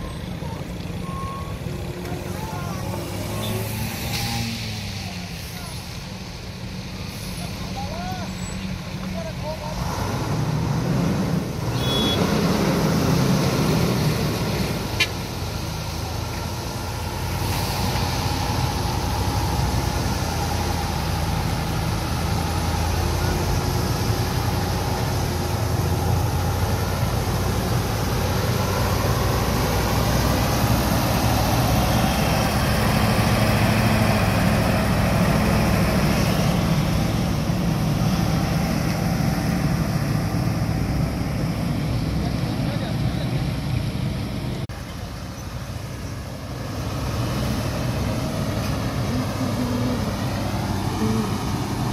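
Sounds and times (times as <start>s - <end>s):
truck diesel engines droning: 0.0s - 51.9s.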